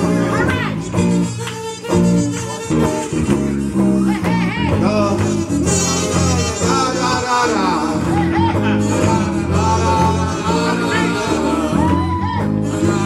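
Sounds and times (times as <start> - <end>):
bass line: 0.0 - 13.0
guitar: 0.0 - 13.0
voices singing doo-wop: 4.0 - 13.0.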